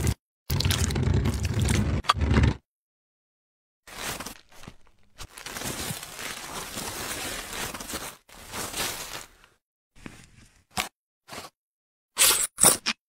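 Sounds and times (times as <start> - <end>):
crinkling rustling noise: 3.9 - 10.4.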